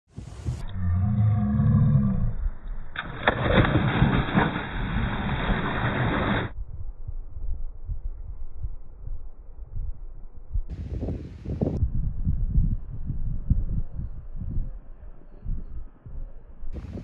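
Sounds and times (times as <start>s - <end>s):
low pitched rumble: 0.2s - 10.8s
large water splash: 3.0s - 6.5s.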